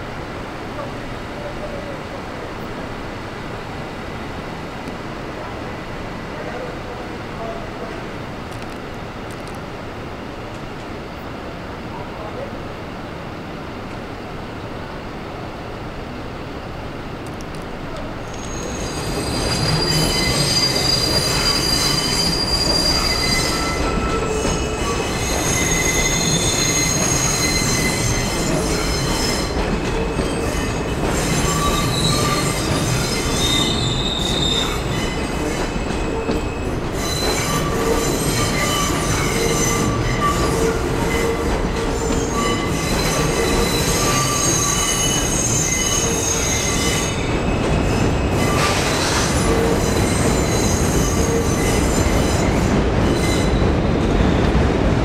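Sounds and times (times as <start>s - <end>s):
rumble of rolling train cars: 0.0s - 55.0s
train wheels squealing: 18.3s - 54.6s.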